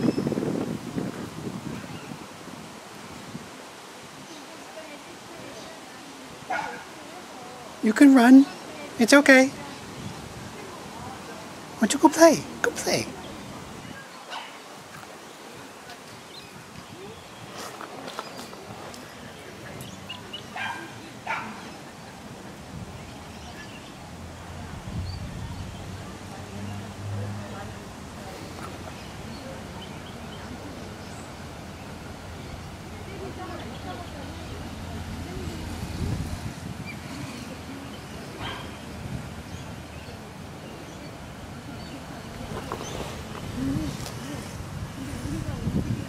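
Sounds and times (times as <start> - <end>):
wind rumble on microphone: 0.0 - 4.4, 9.5 - 11.8, 14.8 - 46.0
dog barking: 6.5 - 6.9, 14.3 - 14.6, 20.6 - 21.6, 38.4 - 38.8.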